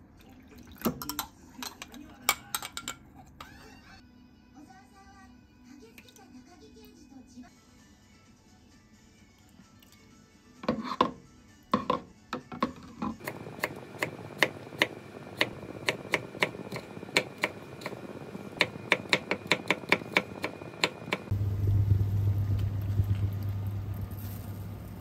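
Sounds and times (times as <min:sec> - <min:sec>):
low hum: 0:13.3 - 0:25.0.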